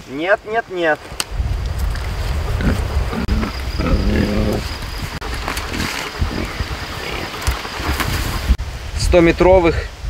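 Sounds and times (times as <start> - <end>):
pig grunting: 2.5 - 7.4.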